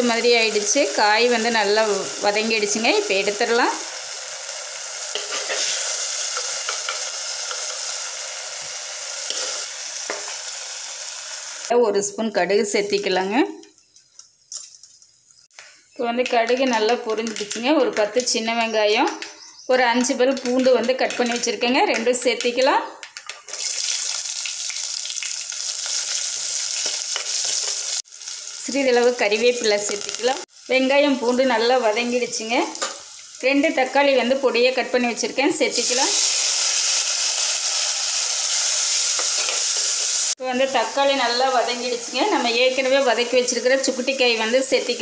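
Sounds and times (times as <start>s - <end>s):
hot oil sizzling: 0.0s - 11.7s, 23.1s - 45.0s.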